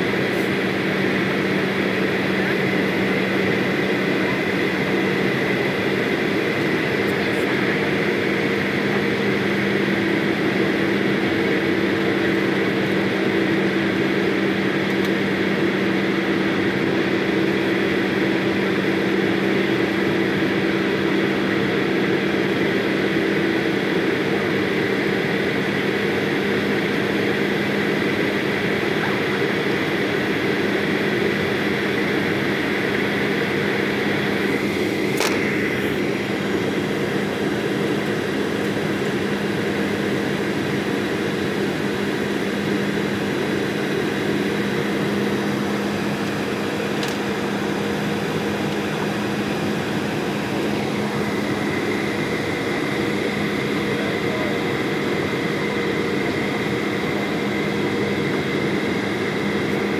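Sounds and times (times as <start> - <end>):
jet engine and airflow noise: 0.0 - 59.9
sharp click: 35.2 - 35.4.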